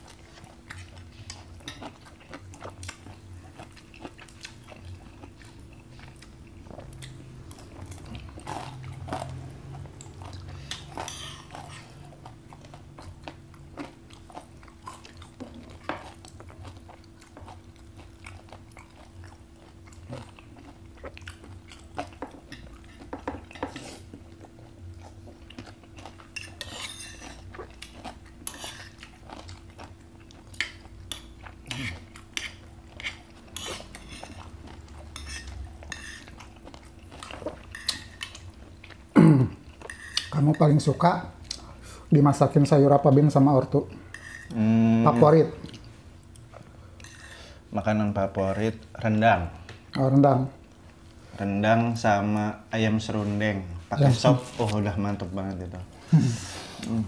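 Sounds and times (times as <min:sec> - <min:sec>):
chewing and crunching food: 0:00.0 - 0:47.7
faint steady hum: 0:00.0 - 0:57.0.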